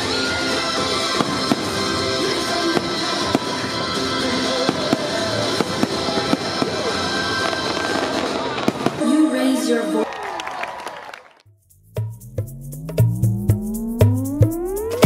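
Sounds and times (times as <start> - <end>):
fireworks bangs and crackles: 0.0 - 9.8
fireworks show music: 0.0 - 10.0, 11.7 - 15.0.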